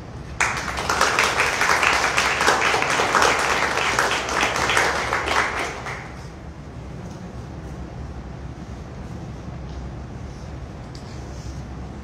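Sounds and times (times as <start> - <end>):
audience applauding: 0.4 - 6.3.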